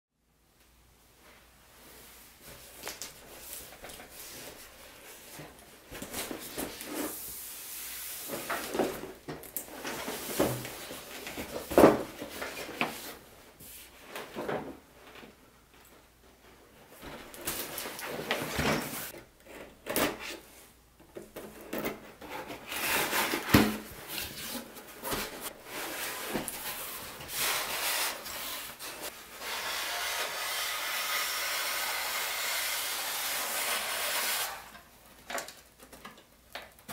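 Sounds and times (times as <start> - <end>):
steady hiss: 6.2 - 9.0
cardboard rubbing and scraping: 22.2 - 29.2.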